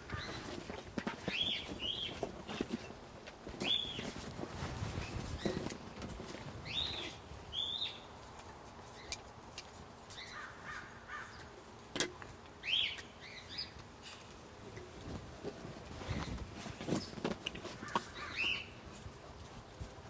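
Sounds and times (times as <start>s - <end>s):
birds calling: 0.0s - 3.0s, 3.6s - 4.2s, 6.6s - 8.1s, 10.1s - 11.6s, 12.6s - 14.3s, 16.0s - 19.0s.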